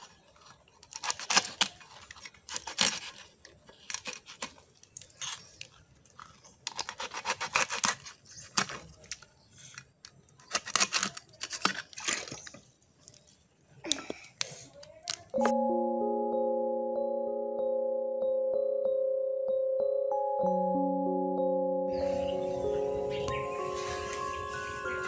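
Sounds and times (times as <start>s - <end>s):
prawn shells cracking and tearing: 0.0s - 13.3s, 14.1s - 15.4s.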